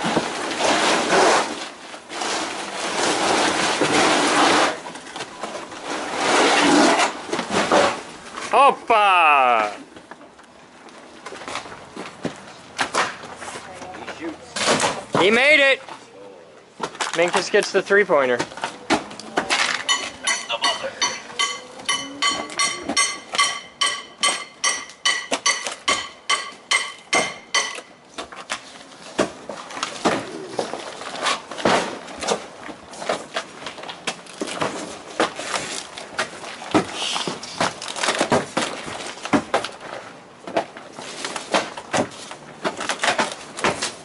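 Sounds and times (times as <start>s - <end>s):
knocking and scraping roofing: 0.0s - 8.1s
hammer striking roofing: 20.3s - 27.8s.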